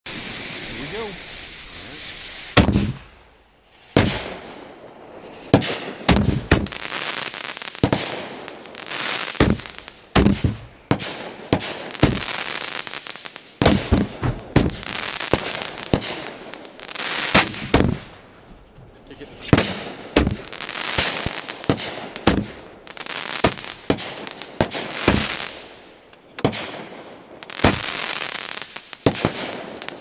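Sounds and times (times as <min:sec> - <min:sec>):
hiss of sparks: 0:00.1 - 0:03.0, 0:08.8 - 0:14.0, 0:27.5 - 0:30.0
fireworks bangs: 0:00.1 - 0:30.0.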